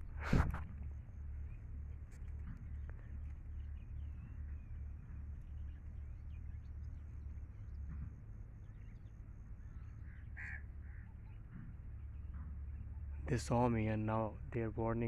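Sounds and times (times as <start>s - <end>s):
steady low rumble: 0.0s - 15.0s
crows cawing: 9.8s - 11.2s.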